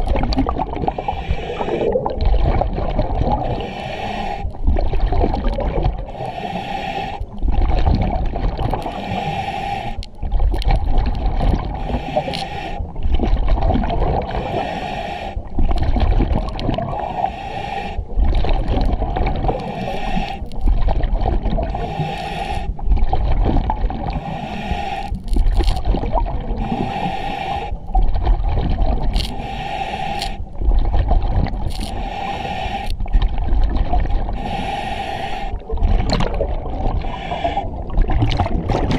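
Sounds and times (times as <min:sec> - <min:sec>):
exhaled bubbles rumbling: 0:00.0 - 0:06.2, 0:07.2 - 0:09.3, 0:09.9 - 0:14.7, 0:15.4 - 0:17.3, 0:18.0 - 0:24.4, 0:25.1 - 0:29.5, 0:30.4 - 0:34.5, 0:35.6 - 0:38.9
regulator hiss on inhale: 0:00.9 - 0:02.0, 0:03.5 - 0:04.6, 0:06.1 - 0:07.4, 0:08.8 - 0:10.2, 0:11.7 - 0:12.9, 0:14.3 - 0:15.5, 0:17.0 - 0:18.2, 0:19.5 - 0:20.7, 0:21.7 - 0:22.8, 0:24.1 - 0:25.8, 0:26.6 - 0:27.8, 0:29.1 - 0:30.6, 0:31.7 - 0:33.2, 0:34.4 - 0:35.6, 0:37.0 - 0:37.8.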